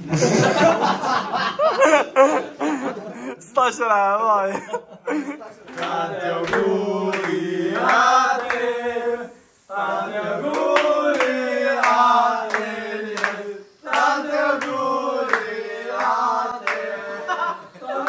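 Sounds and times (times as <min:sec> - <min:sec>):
hand claps: 0:05.7 - 0:08.7, 0:10.4 - 0:16.9
men singing a chant: 0:05.7 - 0:18.0.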